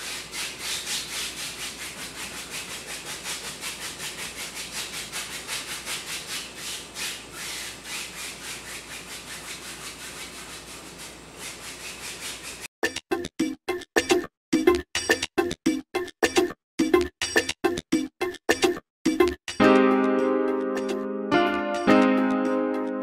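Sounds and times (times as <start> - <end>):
paintbrush scrubbing on canvas: 0.0 - 12.7.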